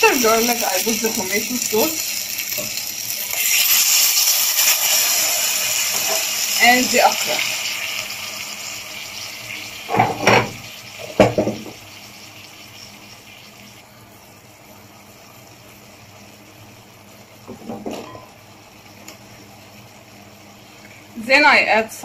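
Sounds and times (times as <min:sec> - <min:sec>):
meat sizzling in a pan: 0:00.0 - 0:21.6
sharp knocks in pan: 0:09.9 - 0:11.8.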